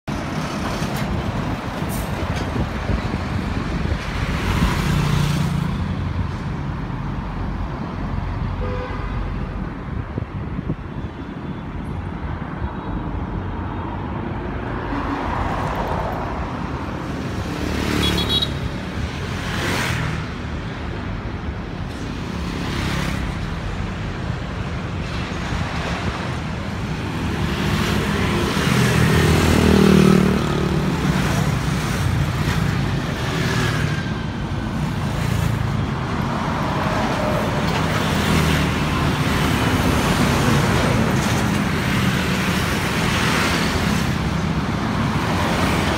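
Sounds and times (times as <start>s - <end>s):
road traffic passing: 0.0s - 45.9s.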